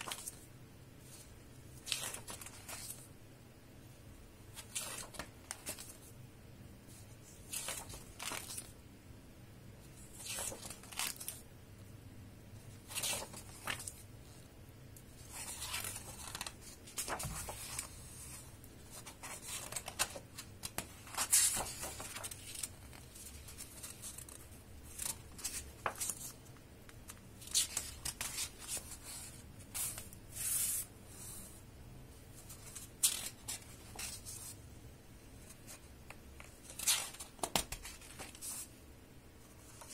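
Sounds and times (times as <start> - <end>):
book pages turning: 0.0 - 0.4, 1.1 - 3.0, 4.5 - 6.1, 7.4 - 8.7, 10.0 - 11.4, 12.8 - 14.1, 15.2 - 30.9, 35.5 - 38.7.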